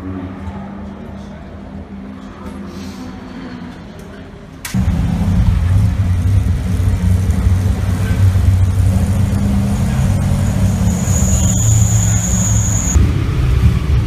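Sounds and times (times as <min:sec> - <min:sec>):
race car engine idling: 0:04.8 - 0:14.0.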